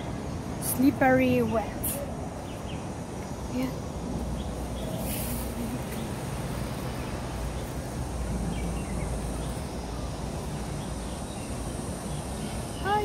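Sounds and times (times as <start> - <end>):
low outdoor rumble: 0.0 - 13.0
brief hiss: 5.0 - 5.8.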